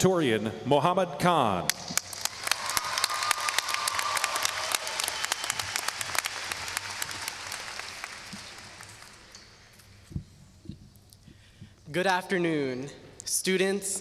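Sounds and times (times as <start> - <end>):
audience applauding: 2.0 - 9.6.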